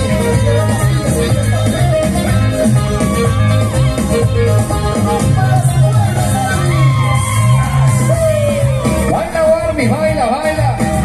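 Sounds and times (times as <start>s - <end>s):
folk dance music: 0.0s - 11.0s.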